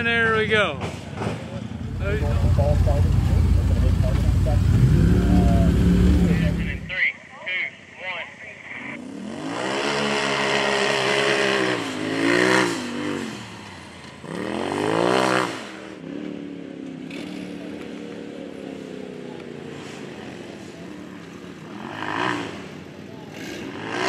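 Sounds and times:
racing engine revving: 1.2s - 7.0s, 9.0s - 18.3s, 21.6s - 24.0s.

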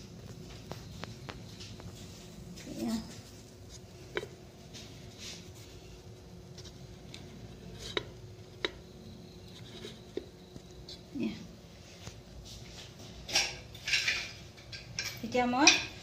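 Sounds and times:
faint steady hum: 0.0s - 16.0s
paper cups tapping in metal pot: 6.4s - 11.1s.

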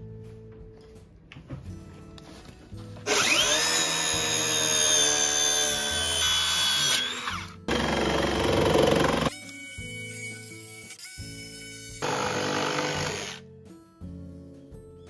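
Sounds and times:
circular saw cutting plywood: 3.1s - 9.3s, 12.0s - 13.4s
jigsaw cutting with chattering stroke: 3.1s - 9.3s, 12.0s - 13.4s.

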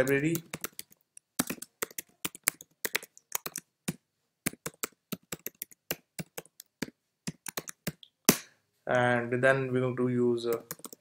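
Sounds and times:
keyboard typing: 0.0s - 8.0s, 10.5s - 11.0s.

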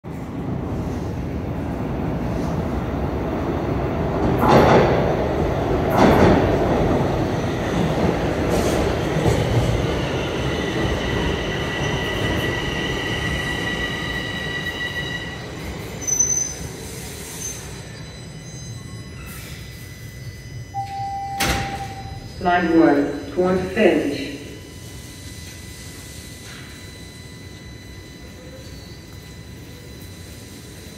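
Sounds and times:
train wheels rumbling on rail: 0.1s - 18.2s
high-pitched brake squeal: 11.4s - 22.5s, 24.6s - 30.9s.

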